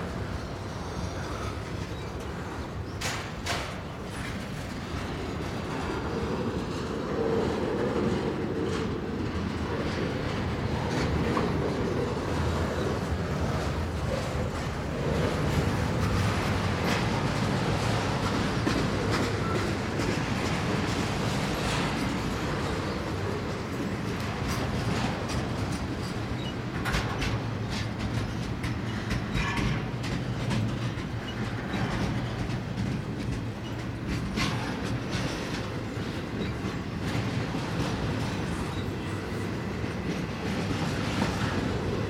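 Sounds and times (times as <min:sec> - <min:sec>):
freight train wheels rumbling: 0:00.0 - 0:42.0
wheels clicking over rail joints: 0:01.3 - 0:42.0.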